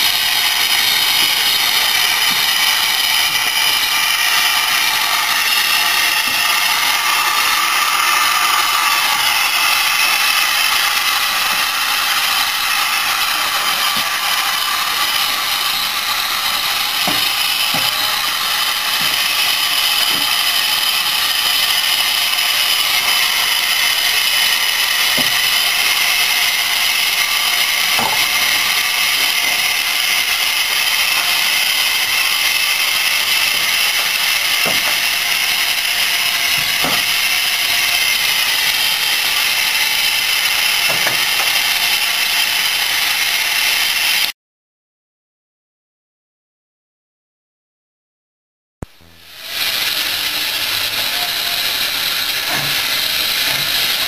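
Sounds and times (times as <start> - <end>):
steam hissing: 0.0 - 44.3, 49.0 - 54.0.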